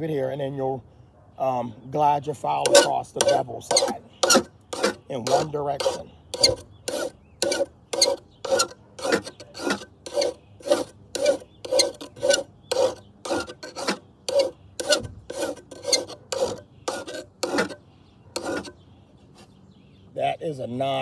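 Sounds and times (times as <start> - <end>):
hand file rasping on steel blade: 2.6 - 17.8, 18.4 - 18.8.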